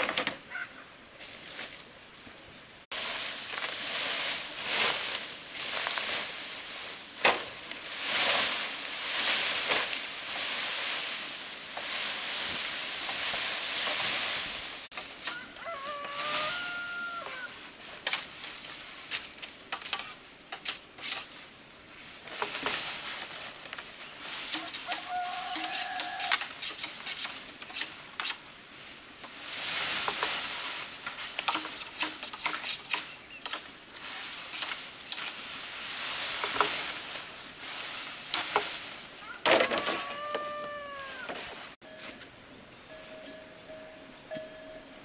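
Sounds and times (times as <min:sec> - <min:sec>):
rustling or scraping noise: 0:01.2 - 0:43.5.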